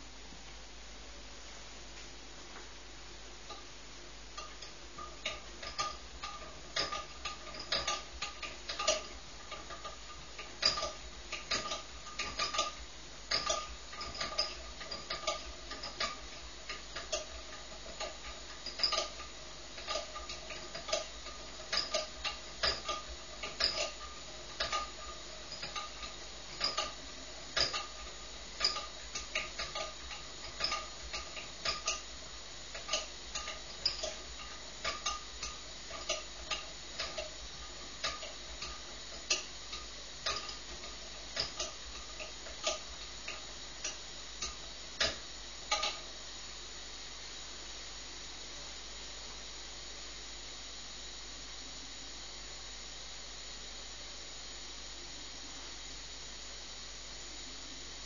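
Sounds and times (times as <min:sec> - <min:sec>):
squeaky pump clicks: 0:04.4 - 0:32.1, 0:32.7 - 0:46.1
pressure lamp hissing: 0:04.4 - 0:46.8.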